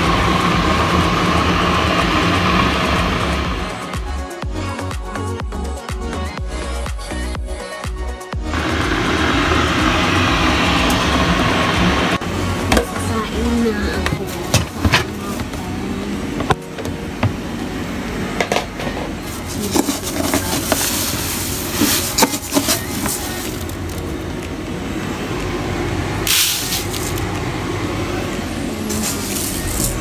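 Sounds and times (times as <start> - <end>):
rice grains rushing: 19.2 - 24.0, 26.2 - 27.4, 28.9 - 30.0.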